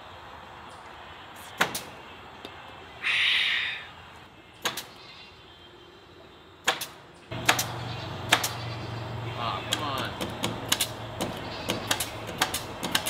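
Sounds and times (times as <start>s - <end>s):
air hiss: 3.0s - 3.9s
pneumatic staple gun firing: 6.7s - 7.7s, 11.9s - 13.0s.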